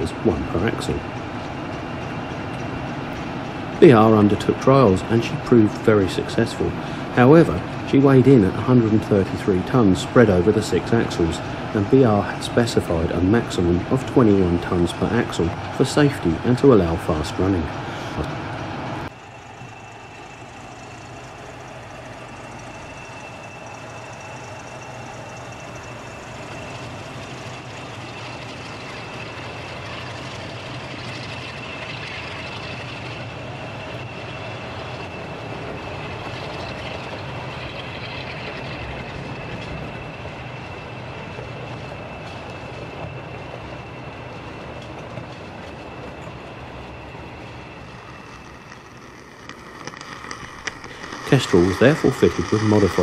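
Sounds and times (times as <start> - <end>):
model train motor whine: 0.0 - 53.0
wheels clicking on rails: 0.0 - 53.0.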